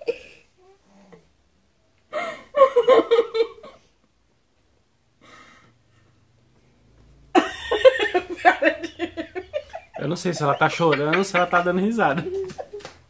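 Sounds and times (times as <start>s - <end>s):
woman laughing breathily: 2.1s - 3.9s.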